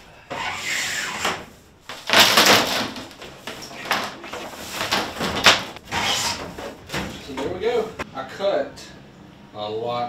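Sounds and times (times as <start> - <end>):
plastic tubing scraping through wood: 0.3 - 6.8.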